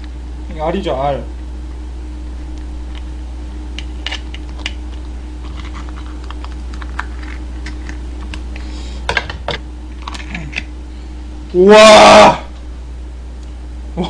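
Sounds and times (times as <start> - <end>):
steady low hum: 0.0 - 14.0
crab shell cracking: 3.7 - 8.6, 9.9 - 10.7.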